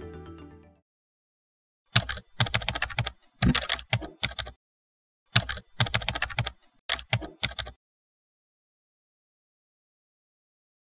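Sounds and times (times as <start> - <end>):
keyboard typing: 1.9 - 4.6, 5.3 - 7.8.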